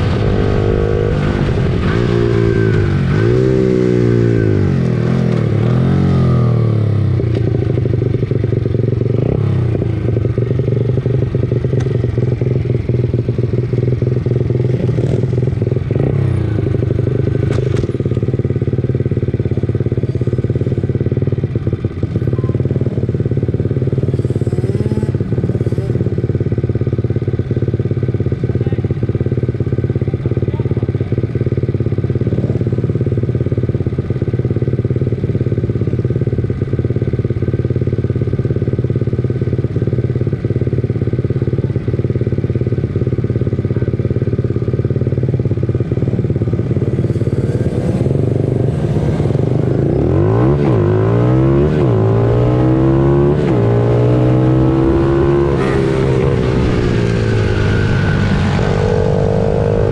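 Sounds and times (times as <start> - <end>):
pit bike engines revving: 0.0 - 7.9, 8.5 - 27.0, 45.9 - 59.9.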